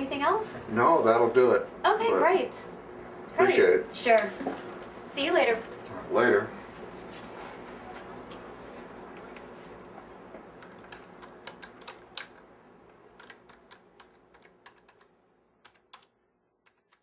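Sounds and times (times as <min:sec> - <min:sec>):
room hum: 0:00.0 - 0:17.0
keyboard key clicks: 0:10.6 - 0:12.4, 0:13.2 - 0:17.0.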